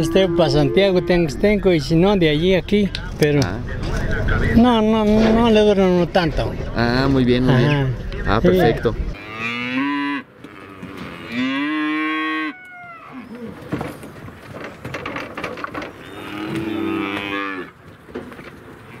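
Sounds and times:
cattle mooing: 0.0 - 1.6, 9.2 - 13.6, 16.0 - 17.8
faint background clatter: 13.6 - 16.7.

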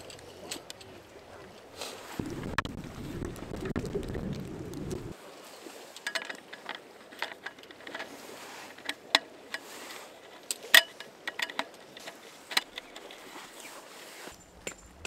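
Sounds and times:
aluminium slats clicking and clattering: 10.4 - 13.2.

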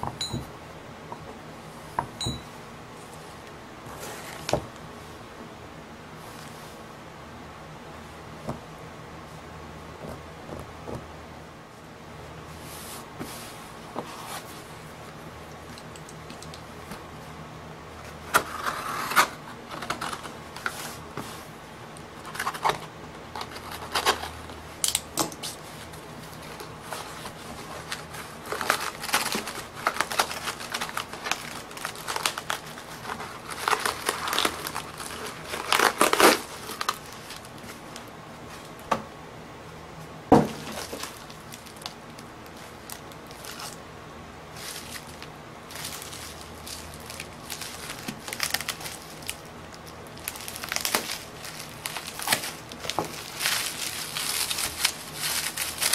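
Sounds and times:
cardboard scraping and rustling: 3.0 - 4.7, 12.5 - 14.9, 18.1 - 21.6, 22.2 - 24.6, 25.4 - 38.7, 40.4 - 41.9, 44.5 - 49.4, 50.2 - 55.9
bubble wrap crinkling: 18.0 - 38.8, 40.5 - 43.8, 44.5 - 55.9.

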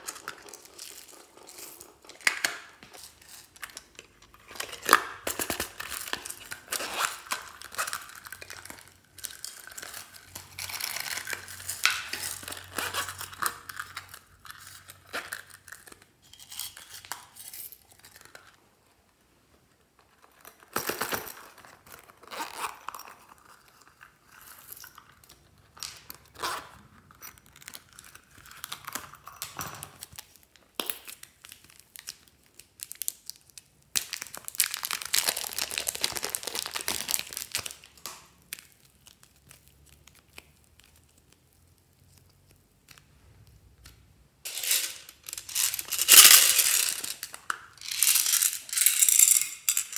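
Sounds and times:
plastic packaging crinkling: 0.0 - 18.6, 25.3 - 43.6, 44.4 - 49.9.

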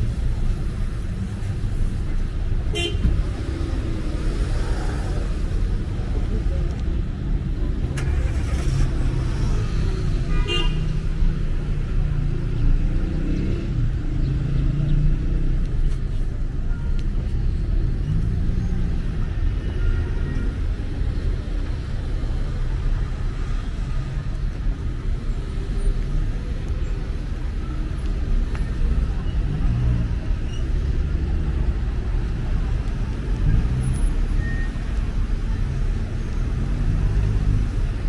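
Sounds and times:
city street traffic rumble: 0.0 - 38.0
car horn toot: 2.7 - 3.0.

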